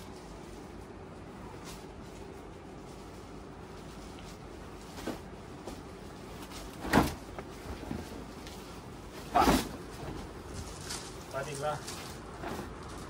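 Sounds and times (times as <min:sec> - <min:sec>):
faint rustles and ticks: 0:01.6 - 0:08.9, 0:10.0 - 0:13.0
cloth and packaging swishes: 0:02.9 - 0:13.0.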